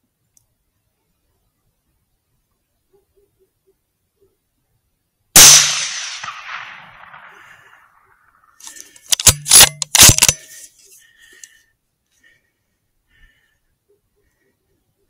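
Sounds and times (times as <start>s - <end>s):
rifle shot echoing: 5.4s - 8.5s
rifle action clacks: 8.6s - 10.5s.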